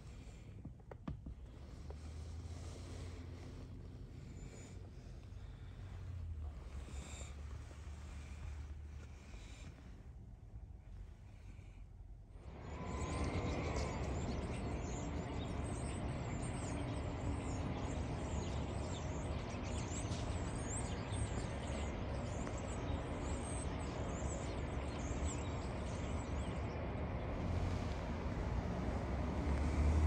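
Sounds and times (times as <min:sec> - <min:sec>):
low traffic rumble: 0:00.0 - 0:30.0
flock of blackbirds chirping: 0:12.5 - 0:30.0.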